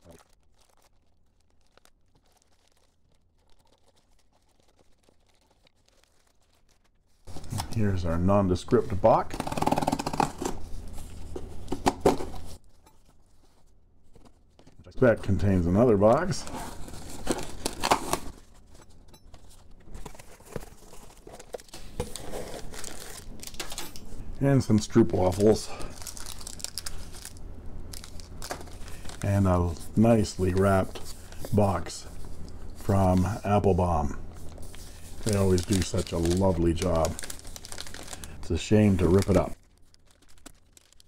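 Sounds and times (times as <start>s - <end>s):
plastic mailer crinkling and tearing: 0.0s - 41.0s
packing tape ripped off box: 9.3s - 10.7s, 16.4s - 18.5s, 20.0s - 24.0s.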